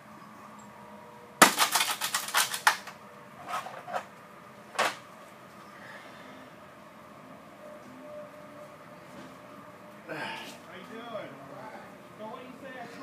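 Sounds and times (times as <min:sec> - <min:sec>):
metal parts clattering: 0:01.4 - 0:04.1.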